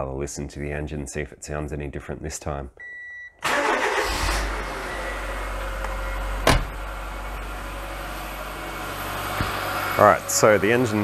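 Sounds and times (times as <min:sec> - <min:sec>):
car engine starting and idling: 0:03.4 - 0:11.0.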